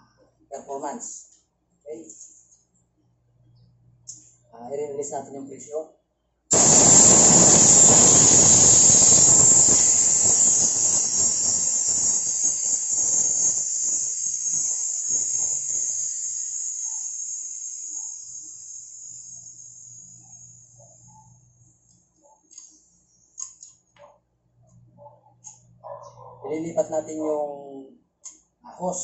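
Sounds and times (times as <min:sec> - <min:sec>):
rush of escaping gas: 0:06.5 - 0:20.5.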